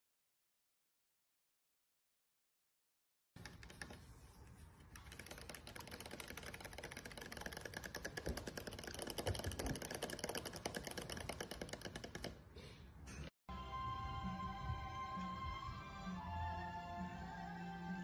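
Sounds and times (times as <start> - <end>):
parrot clicking rapidly: 5.0 - 12.4.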